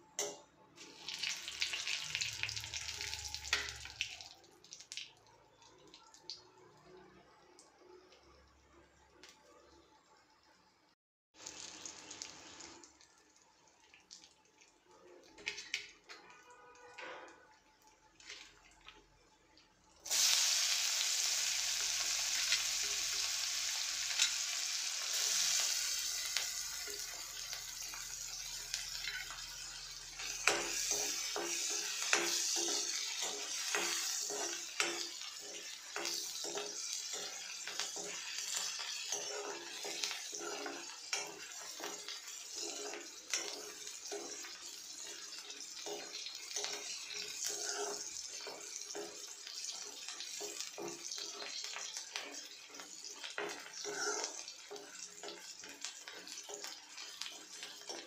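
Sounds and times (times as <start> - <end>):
hot oil sizzling: 0.0 - 5.2, 11.4 - 16.8, 20.0 - 58.0
metal spoon scraping pan: 27.8 - 58.0.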